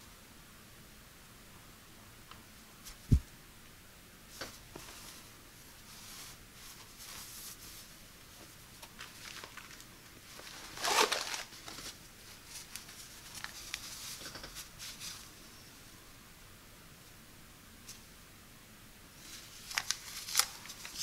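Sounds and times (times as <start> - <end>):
fabric rustling: 4.4 - 15.3, 19.2 - 21.0.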